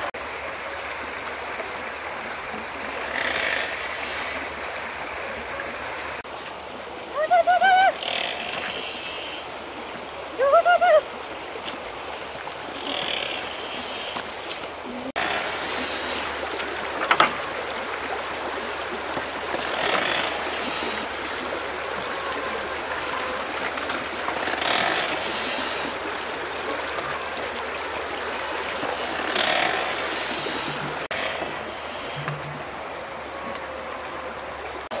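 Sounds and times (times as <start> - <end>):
stream water flowing: 0.0 - 35.0.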